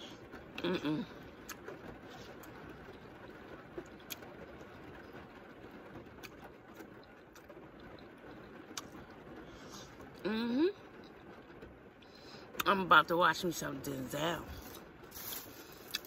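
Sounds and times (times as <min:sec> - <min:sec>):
soft chewing: 0:14.5 - 0:16.0.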